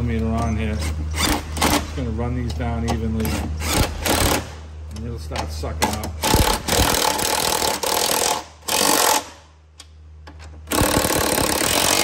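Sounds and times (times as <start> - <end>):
impact gun hammering nuts: 6.2 - 9.3, 10.7 - 12.0.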